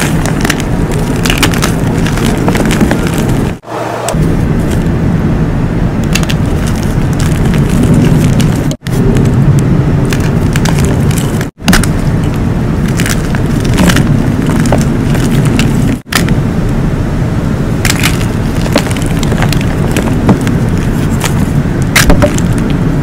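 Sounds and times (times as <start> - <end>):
chalk blocks crunching by hand: 0.0 - 3.6, 6.0 - 9.4, 10.0 - 16.4, 17.8 - 22.8.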